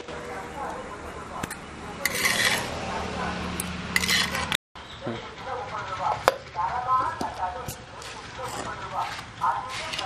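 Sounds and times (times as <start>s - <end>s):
spatula scraping metal pan: 2.0s - 3.0s, 3.9s - 4.6s, 8.0s - 10.0s.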